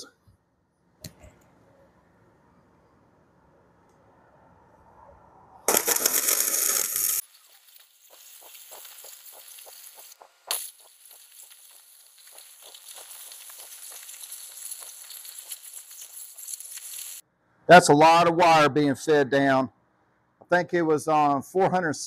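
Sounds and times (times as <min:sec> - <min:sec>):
welding arc crackling: 0:05.7 - 0:17.2.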